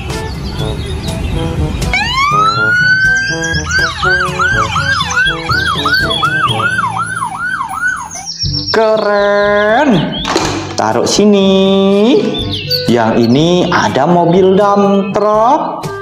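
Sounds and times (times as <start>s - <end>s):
ambulance siren wailing and yelping: 1.8s - 8.7s.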